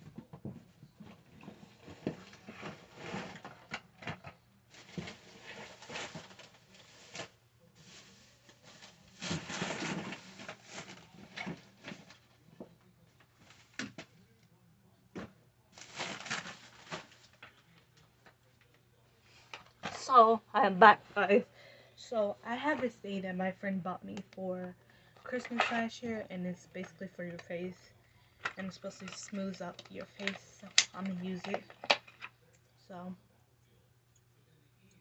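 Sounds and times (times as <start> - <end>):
bedding rustling: 15.8 - 17.4.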